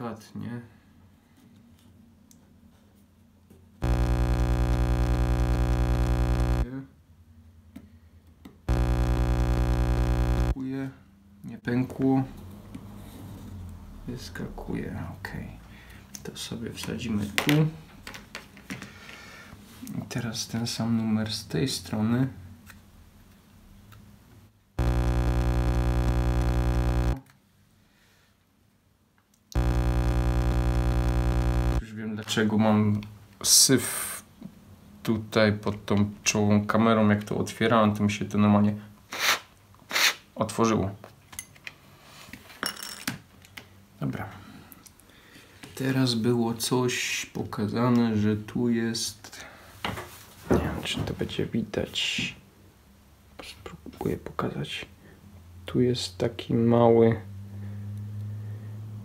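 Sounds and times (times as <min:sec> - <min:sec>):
loud electronic buzz: 0:03.8 - 0:06.7, 0:08.7 - 0:10.6, 0:24.8 - 0:27.2, 0:29.6 - 0:31.8.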